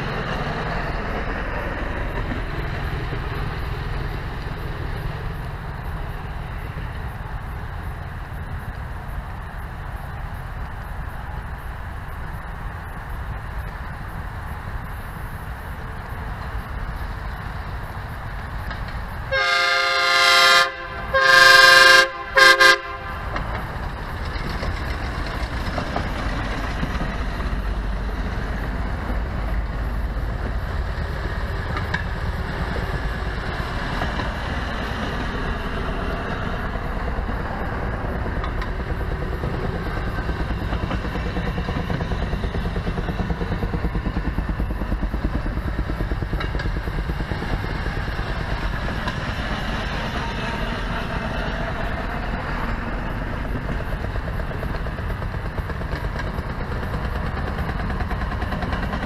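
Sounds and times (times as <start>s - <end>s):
engines and wheels rumbling on rails: 0.0s - 59.0s
railroad speeder horn: 19.3s - 23.6s.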